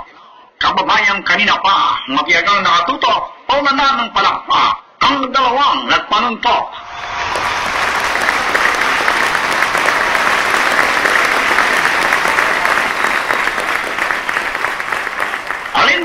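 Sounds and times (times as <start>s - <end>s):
audience applause: 6.9s - 16.0s.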